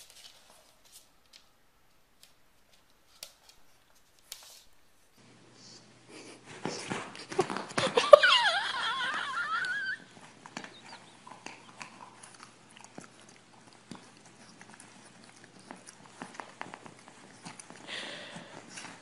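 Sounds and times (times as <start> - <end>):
dog whining: 8.0 - 17.9.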